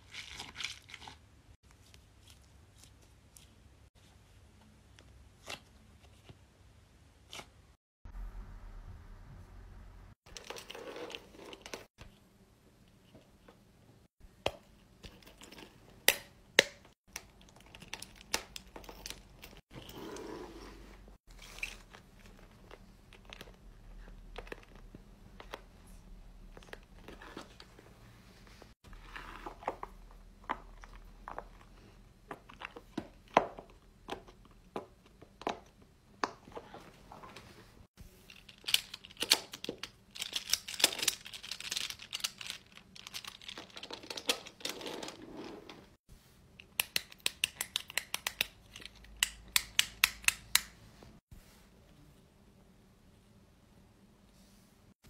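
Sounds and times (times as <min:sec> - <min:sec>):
crinkly crunchy handling noises: 0:36.6 - 0:46.1.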